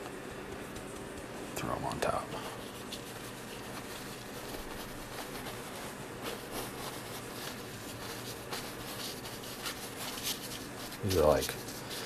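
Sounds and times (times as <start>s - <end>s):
low room hum: 0.0s - 12.0s
paintbrush strokes on canvas: 2.4s - 12.0s.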